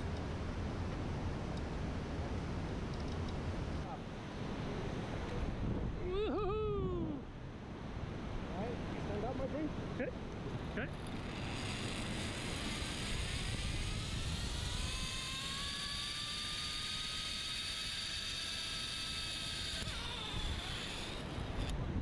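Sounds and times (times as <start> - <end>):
low wind rumble: 0.0 - 22.0
pulley wheels whining on cable: 10.6 - 22.0.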